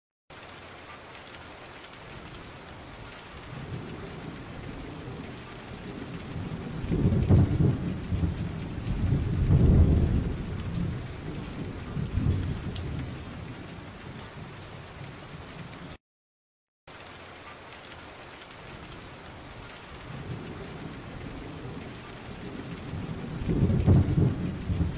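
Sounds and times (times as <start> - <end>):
rain hiss: 0.3 - 15.9, 16.9 - 24.9
rolling thunder: 2.2 - 15.9, 18.7 - 24.9.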